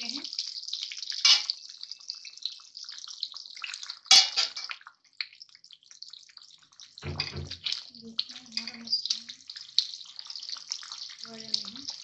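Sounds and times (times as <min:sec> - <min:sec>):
gravy bubbling and spitting: 0:00.0 - 0:12.0
spoon knocking in pan: 0:01.3 - 0:01.5, 0:04.1 - 0:04.7, 0:07.0 - 0:07.7.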